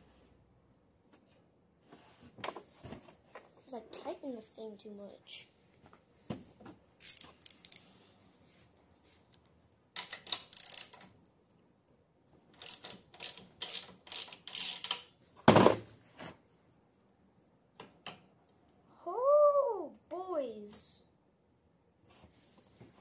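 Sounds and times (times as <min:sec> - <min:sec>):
hand tools clicking on metal: 0:10.0 - 0:11.2, 0:12.4 - 0:15.1.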